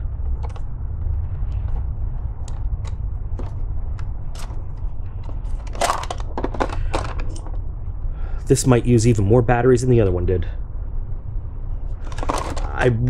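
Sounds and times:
low rumble: 0.0 - 13.0
plastic housing clicking and rattling: 0.2 - 7.6, 12.0 - 12.7.

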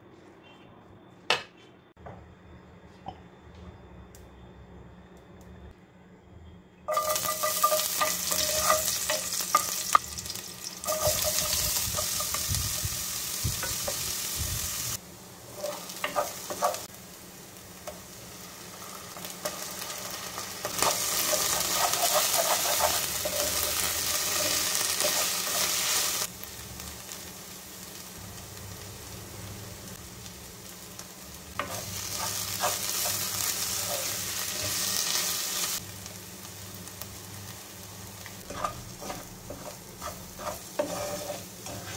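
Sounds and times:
wooden spatula scraping pot: 6.9 - 9.6, 20.7 - 25.7, 38.4 - 41.9
food sizzling in hot oil: 6.9 - 41.9.

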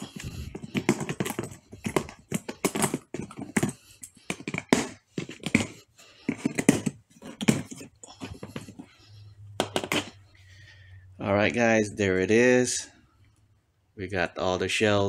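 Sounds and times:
case latches clicking and knocking: 0.0 - 8.9, 9.6 - 10.2.

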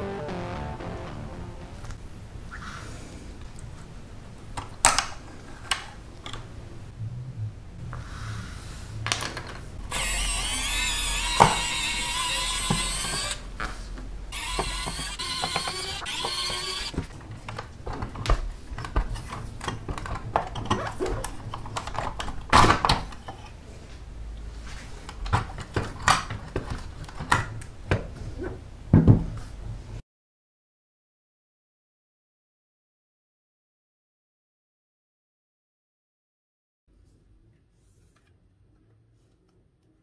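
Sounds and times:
clicks and knocks of model car parts: 4.6 - 6.4, 16.9 - 23.5
electric drill whining: 9.8 - 13.5, 14.3 - 17.0.

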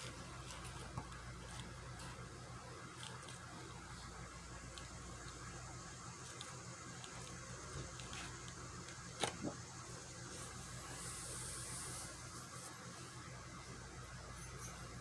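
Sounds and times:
book closing slap: 9.2 - 9.6
hand brushing book cover: 10.2 - 13.2.

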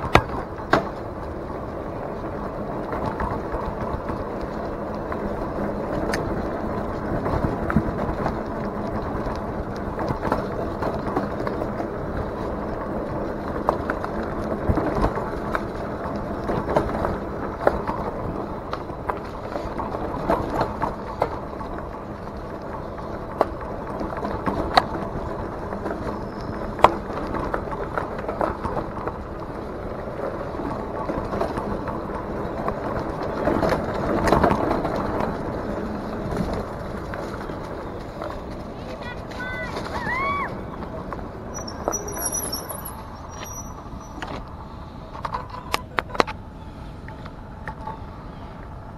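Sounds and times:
bike knocks and rattles: 0.0 - 1.4
bike tyre ride noise: 0.0 - 48.9.

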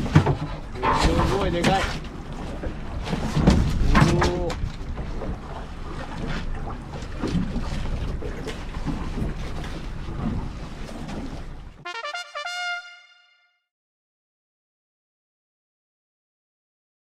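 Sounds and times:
sea: 0.0 - 13.0.

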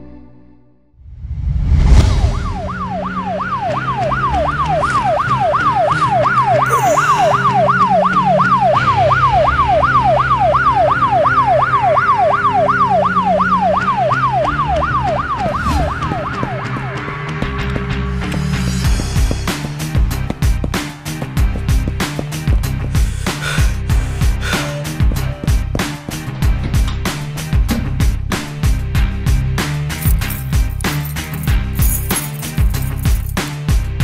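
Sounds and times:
low droning music: 2.0 - 33.3
emergency siren yelping: 2.4 - 17.2.

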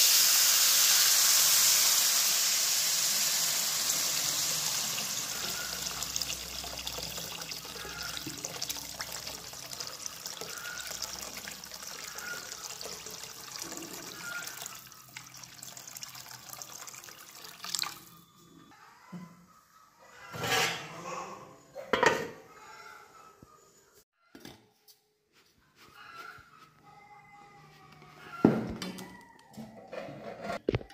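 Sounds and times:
water pouring into metal wok: 0.0 - 18.1.

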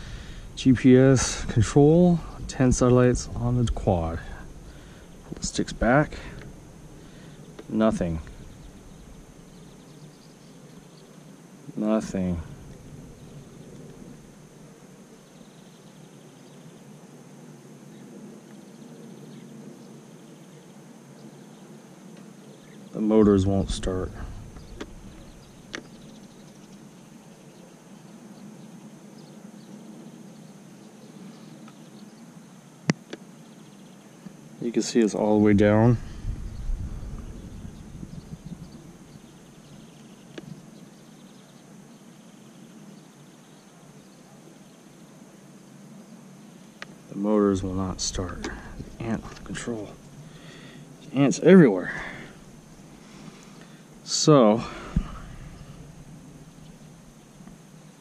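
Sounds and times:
low rumble: 0.0 - 10.0, 35.4 - 39.7
high insect-like hum: 0.0 - 58.0.

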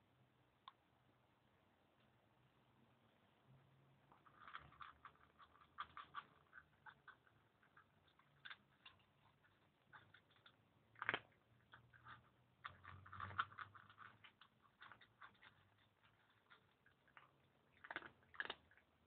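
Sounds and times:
cat crunching dry kibble: 4.0 - 19.0.

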